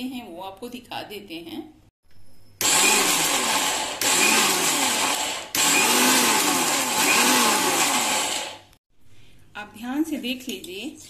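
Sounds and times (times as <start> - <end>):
mixer grinder grinding: 2.6 - 8.7.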